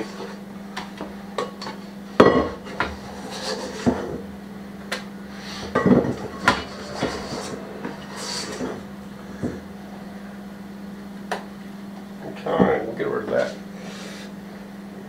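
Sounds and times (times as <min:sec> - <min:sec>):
steady low hum: 0:00.0 - 0:15.0
utensil scraping metal bowl: 0:02.6 - 0:04.3, 0:05.3 - 0:09.9.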